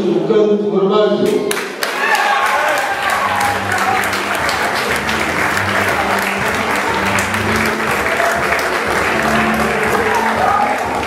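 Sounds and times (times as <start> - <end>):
crowd applauding: 1.5 - 11.0
music playing: 2.2 - 11.0.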